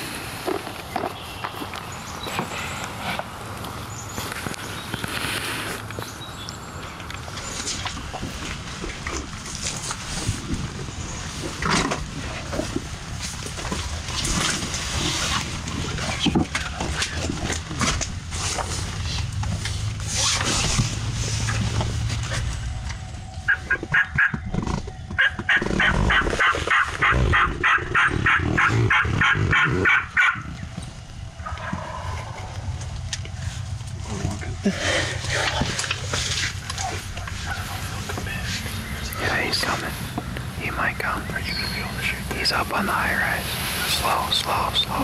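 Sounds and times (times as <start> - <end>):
rustling in leaf litter: 0.0 - 16.2, 34.9 - 45.0
turkey calls: 23.4 - 30.8, 31.4 - 33.0, 36.6 - 42.2.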